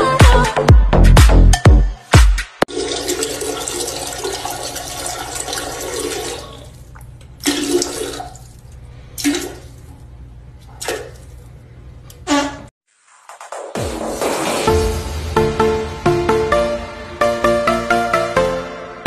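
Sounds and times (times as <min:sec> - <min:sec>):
short bursts of water: 0:02.7 - 0:09.9
toilet flushing: 0:02.7 - 0:09.9.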